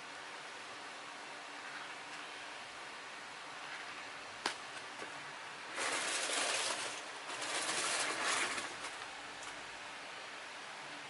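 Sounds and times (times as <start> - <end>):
steady low hiss: 0.0 - 11.0
plastic figure rustling: 5.7 - 9.1.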